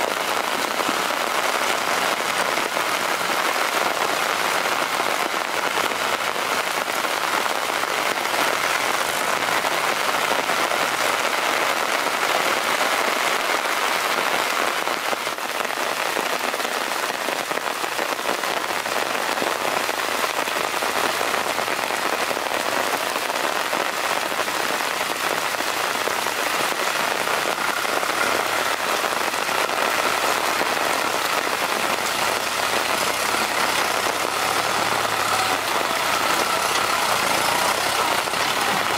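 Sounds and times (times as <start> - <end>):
heavy rain on muddy ground: 0.0 - 38.9
tractor engine humming: 18.9 - 38.9.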